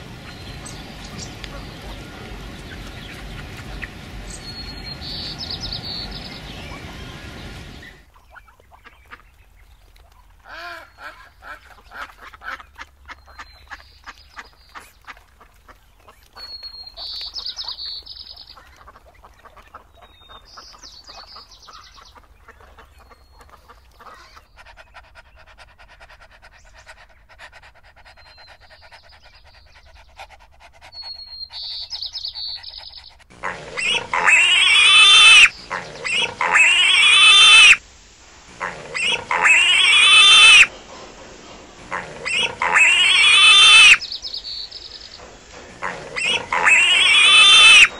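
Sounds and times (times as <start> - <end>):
piglets squealing loudly: 33.4 - 37.8, 38.6 - 40.7, 41.9 - 44.0, 45.8 - 47.9.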